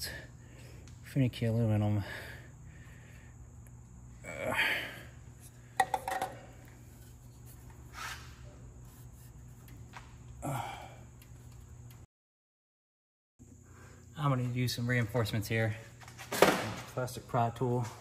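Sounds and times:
low steady hum: 0.0s - 12.1s
strained breaths: 2.0s - 5.8s.

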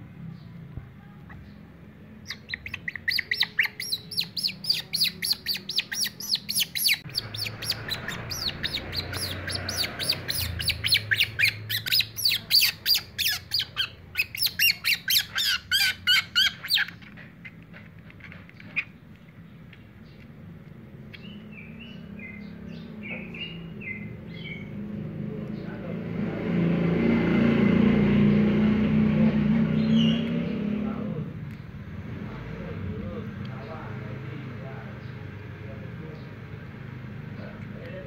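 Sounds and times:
otter pup high-pitched calls: 2.3s - 17.6s.

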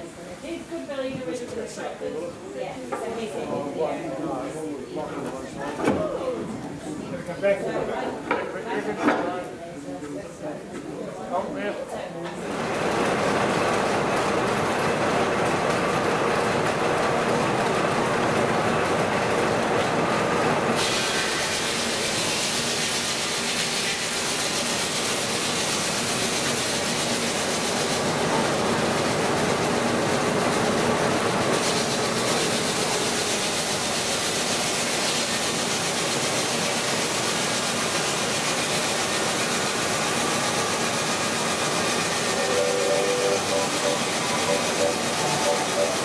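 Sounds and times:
sawmill machinery din: 12.4s - 46.0s.

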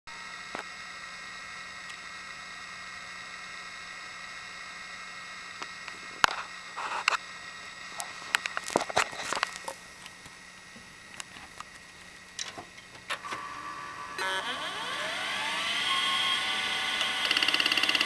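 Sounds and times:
hard drive whining: 0.1s - 18.0s
hard drive heads clicking: 16.6s - 18.0s.

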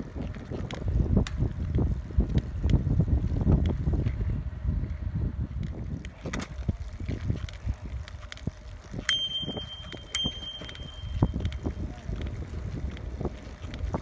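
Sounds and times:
tyres rolling on pavement: 0.0s - 14.0s
wind on microphone: 0.0s - 14.0s
bicycle bell ringing: 9.1s - 11.8s.

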